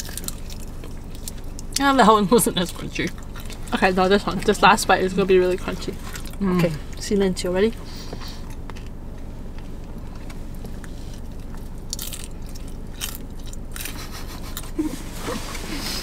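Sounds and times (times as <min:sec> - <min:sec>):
crisp crunches of chewing: 0:00.0 - 0:01.8, 0:02.6 - 0:04.6, 0:05.8 - 0:07.0, 0:07.7 - 0:14.8
low steady hum: 0:00.0 - 0:16.0.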